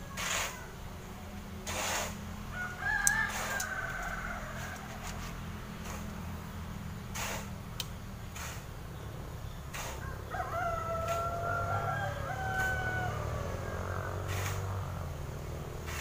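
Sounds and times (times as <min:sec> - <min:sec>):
rooster crowing: 0:02.4 - 0:05.5, 0:10.0 - 0:14.9.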